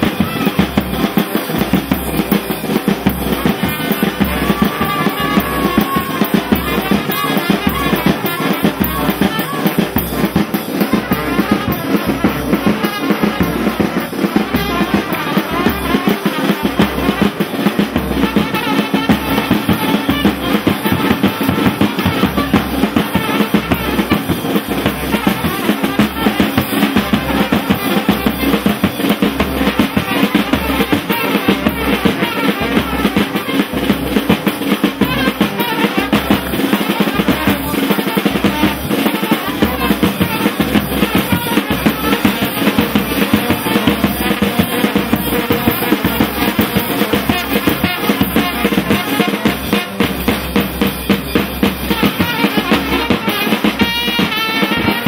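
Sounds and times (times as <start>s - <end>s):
brass band playing dance music: 0.0s - 55.0s
steady bass drum beat: 0.0s - 55.0s.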